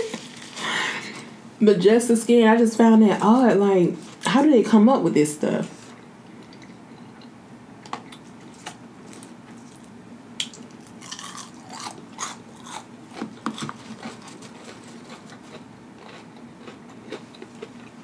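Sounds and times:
person chewing food: 9.1 - 18.0.

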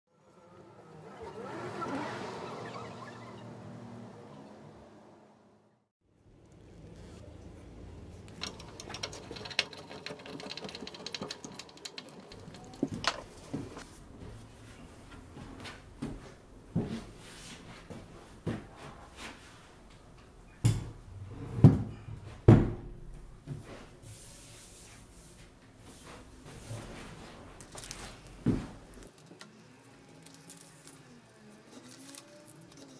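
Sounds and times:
fast rattling clatter: 8.4 - 13.8.

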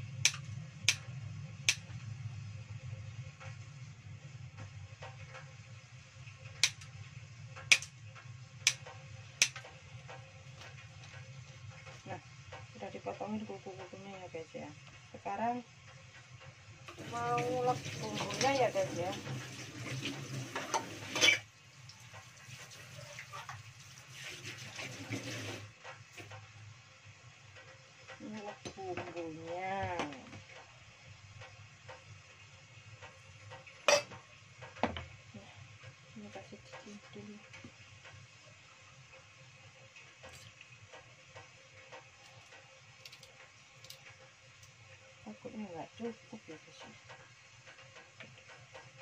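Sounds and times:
low steady hum: 0.0 - 19.8.

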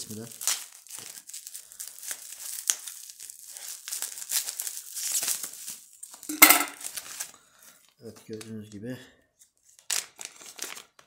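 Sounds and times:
sharp plastic crackle: 0.0 - 7.5, 9.8 - 11.0
bubble wrap crinkling: 0.0 - 8.7, 9.5 - 11.0.

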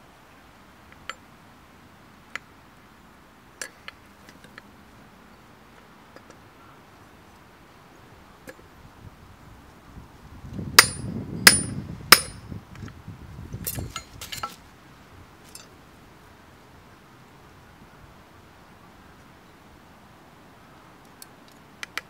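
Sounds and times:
hammer striking iron rod: 10.8 - 12.4
light metal clinks: 13.6 - 14.6, 15.4 - 15.7.

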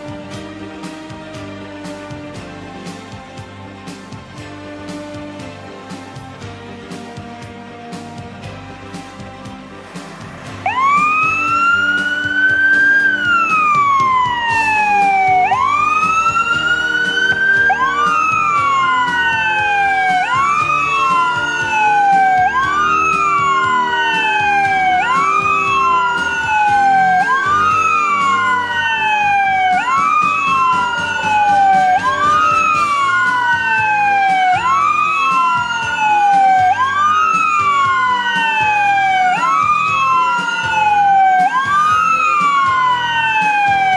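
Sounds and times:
fire truck sirens wailing: 0.0 - 43.9.

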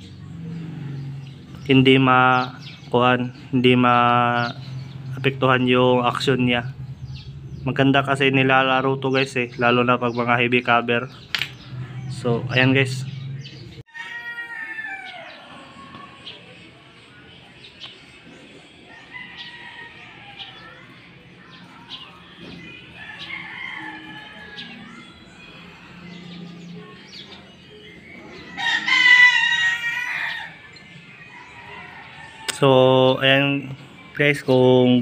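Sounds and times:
birds chirping: 0.0 - 35.0
rooster crowing: 13.9 - 16.1, 18.8 - 20.9, 22.8 - 26.5, 28.4 - 32.7.

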